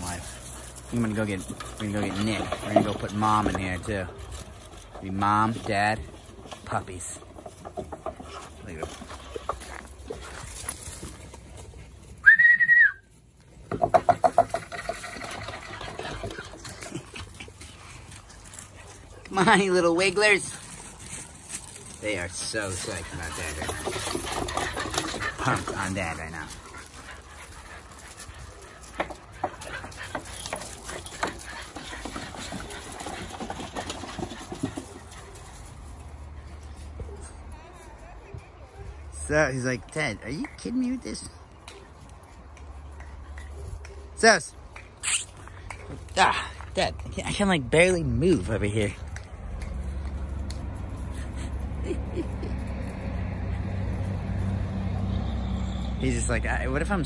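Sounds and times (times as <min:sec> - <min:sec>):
puppies scratching plastic pipe: 0:00.0 - 0:11.8, 0:13.6 - 0:36.4
person whistling high note: 0:12.2 - 0:13.1.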